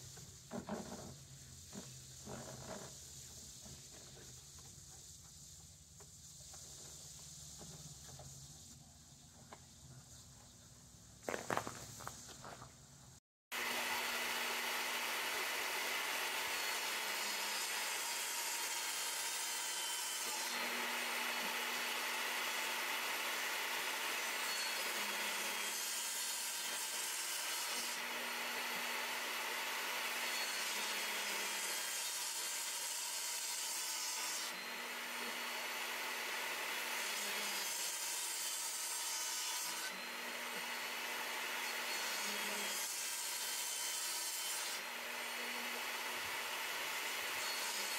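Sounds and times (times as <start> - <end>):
table saw cutting wood: 13.5 - 47.9.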